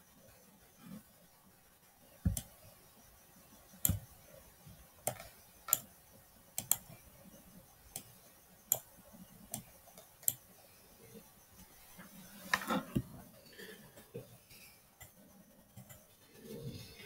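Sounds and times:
computer mouse clicking: 0:02.2 - 0:02.6, 0:03.8 - 0:04.2, 0:05.0 - 0:05.9, 0:06.6 - 0:07.0, 0:07.9 - 0:08.9, 0:09.5 - 0:10.5, 0:15.0 - 0:16.1.

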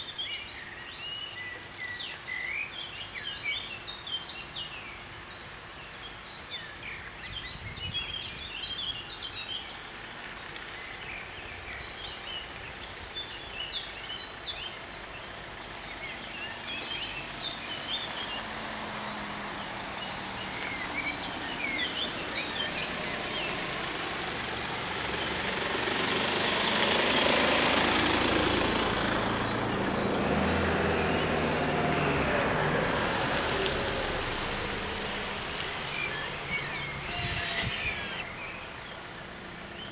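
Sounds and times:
birds chirping: 0:00.0 - 0:39.9
approaching vehicle engine drone: 0:12.0 - 0:39.9
soft outdoor hiss: 0:33.0 - 0:39.9.

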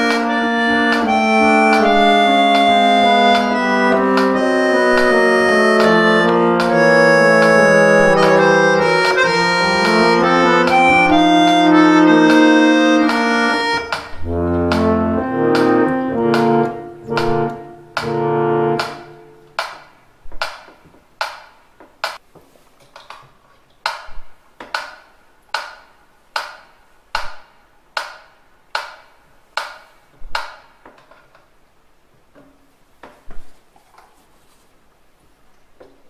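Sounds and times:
harmonium chords: 0:00.0 - 0:19.6
metronome ticking: 0:00.0 - 0:22.2.

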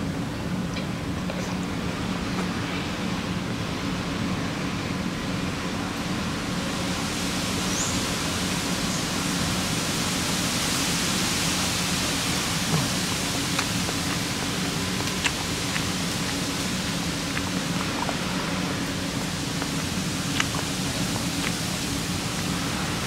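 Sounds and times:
rushing background noise: 0:00.0 - 0:23.0.

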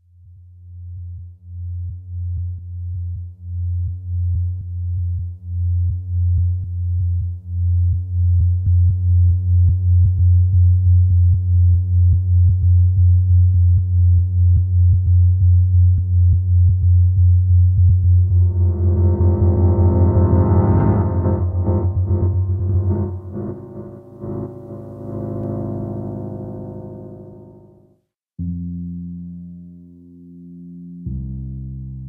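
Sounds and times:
pulsing synthesizer bass: 0:07.8 - 0:30.2.

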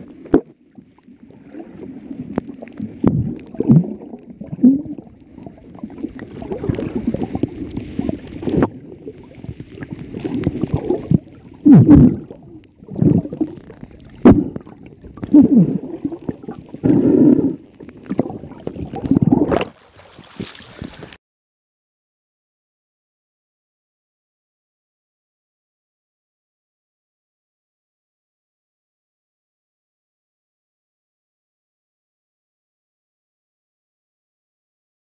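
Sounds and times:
underwater gurgling and sloshing: 0:00.0 - 0:21.2
dull underwater thumps: 0:14.2 - 0:15.4
water splashing hiss: 0:19.7 - 0:21.2.

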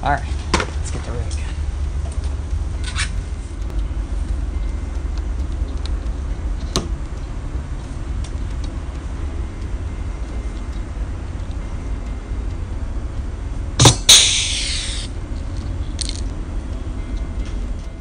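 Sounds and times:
low rumble: 0:00.0 - 0:18.0
sharp click: 0:13.8 - 0:16.3.

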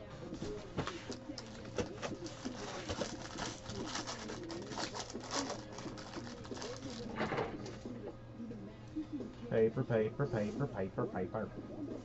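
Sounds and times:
foil pack crinkling and tearing: 0:01.0 - 0:07.2.

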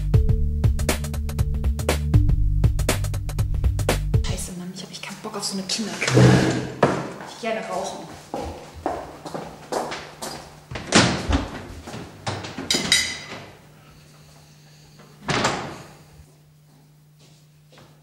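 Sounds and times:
steady electrical hum: 0:03.5 - 0:18.0
chairs and crockery clattering: 0:05.8 - 0:07.4, 0:10.7 - 0:13.7, 0:15.1 - 0:16.0
door shutting thud: 0:06.0 - 0:07.1, 0:10.8 - 0:11.6, 0:15.2 - 0:16.0.

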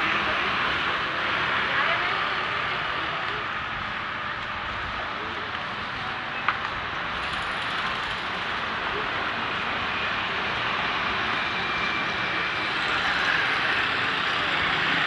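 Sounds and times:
motorbikes and cars passing: 0:06.9 - 0:15.0.

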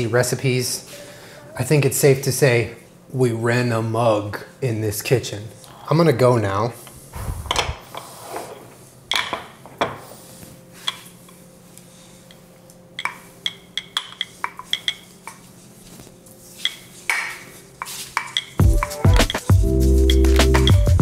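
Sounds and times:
ceramic mugs clinking: 0:13.0 - 0:15.5, 0:16.6 - 0:19.5
spoon rattling in mug: 0:18.2 - 0:19.5.

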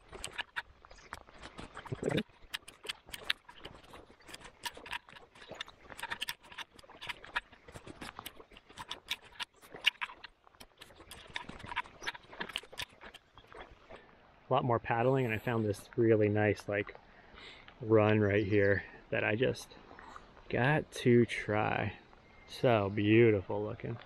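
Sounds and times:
raindrops pattering: 0:00.0 - 0:14.0.

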